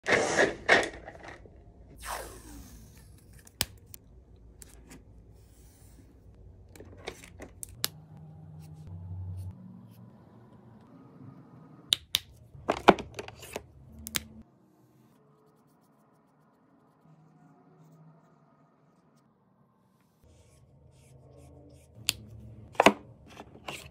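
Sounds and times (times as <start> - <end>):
marker caps clicking: 11.9 - 14.3.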